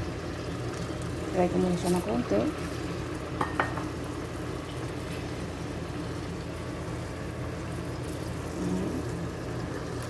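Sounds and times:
chicken sizzling in hot oil: 0:00.0 - 0:10.0.

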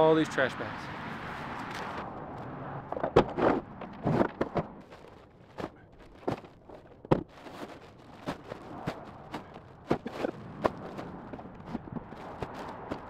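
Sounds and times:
plastic trash bags crinkling: 0:04.8 - 0:13.0.

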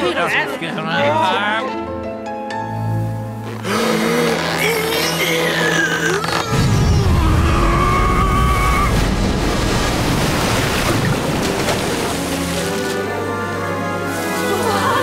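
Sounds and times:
background music: 0:00.0 - 0:08.3, 0:08.9 - 0:15.0.

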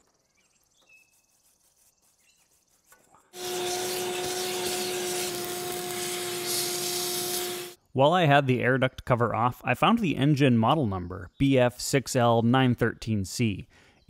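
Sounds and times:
brush scratching metal fins: 0:01.0 - 0:07.8.

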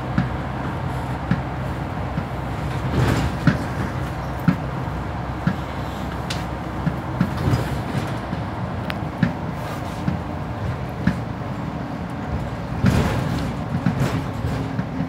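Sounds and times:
bus engine rumble: 0:00.0 - 0:15.0
knocks and rattles: 0:12.4 - 0:15.0.

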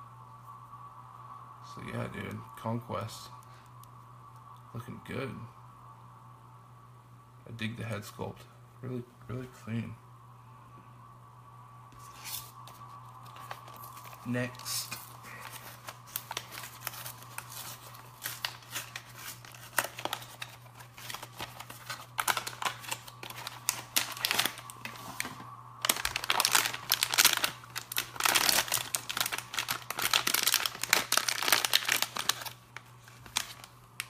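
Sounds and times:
plastic wrapper crinkling and tearing: 0:12.0 - 0:34.0.

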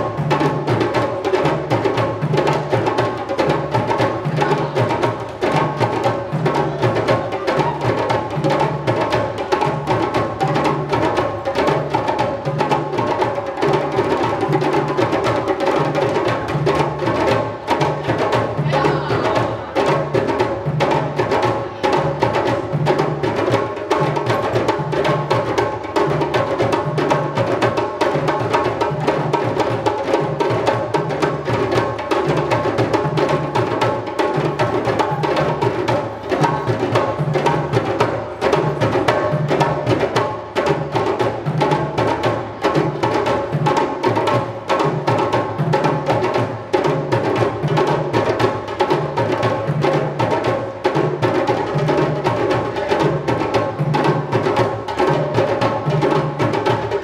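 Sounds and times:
hand drums: 0:00.0 - 0:57.0.

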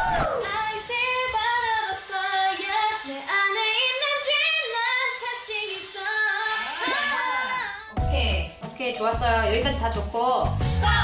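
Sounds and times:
young female voices singing: 0:00.0 - 0:08.0, 0:10.8 - 0:11.0.

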